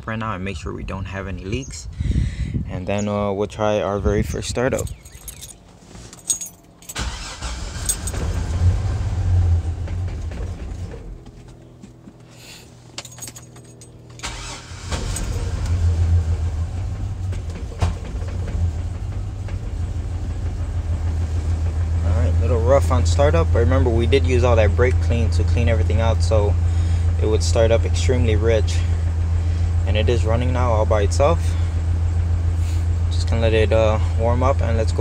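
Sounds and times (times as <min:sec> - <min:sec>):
truck engine starting and running: 0:00.0 - 0:35.0
keys jingling: 0:04.7 - 0:08.2, 0:12.9 - 0:15.4.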